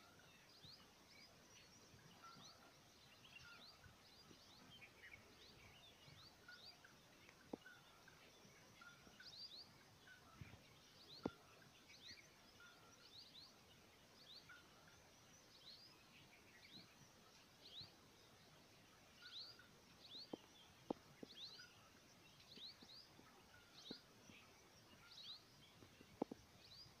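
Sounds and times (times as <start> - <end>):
bird chirps: 0.0 - 27.0.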